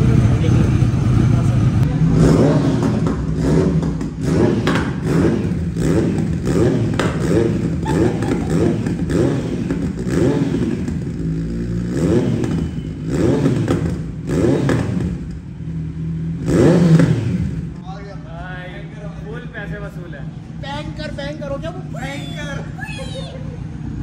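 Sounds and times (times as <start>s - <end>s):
motorcycle engine revving: 0.0s - 17.8s.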